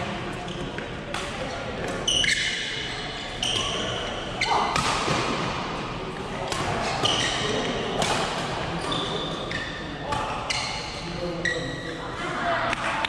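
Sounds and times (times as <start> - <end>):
shoes squeaking on court: 0.3 - 4.7, 6.8 - 7.8, 8.7 - 12.0
rackets striking shuttlecock: 6.4 - 9.0.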